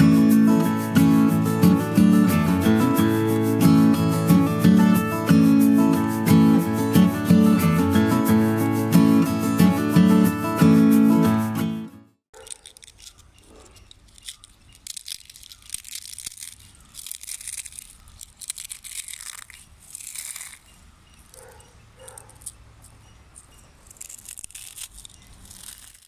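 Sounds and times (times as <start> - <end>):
fried snacks crunching by hand: 12.3 - 22.6, 23.4 - 26.0.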